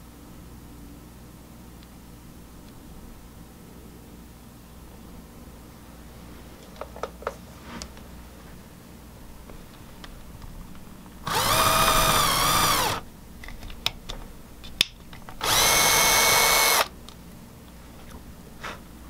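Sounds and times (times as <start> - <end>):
power drill drilling into wood: 11.3 - 13.0, 15.4 - 16.9.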